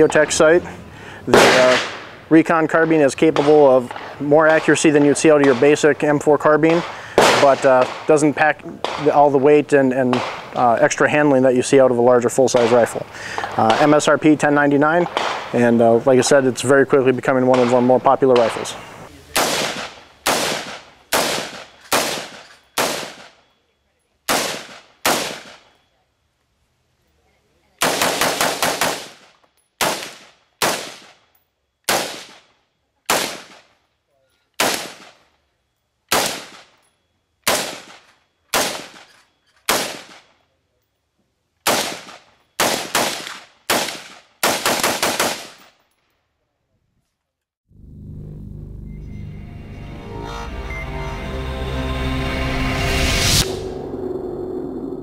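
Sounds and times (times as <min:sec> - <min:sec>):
rifle shots with echo: 0:01.3 - 0:10.8, 0:12.4 - 0:14.3, 0:14.9 - 0:16.4, 0:17.3 - 0:23.6, 0:24.3 - 0:25.8, 0:27.8 - 0:31.3, 0:31.9 - 0:33.8, 0:34.6 - 0:35.3, 0:36.1 - 0:36.8, 0:37.4 - 0:40.4, 0:41.6 - 0:45.9.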